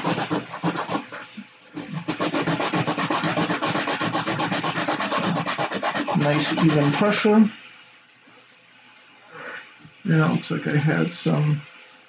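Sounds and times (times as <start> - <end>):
plastic part rasping on sandpaper: 0.0 - 1.2, 1.8 - 7.2.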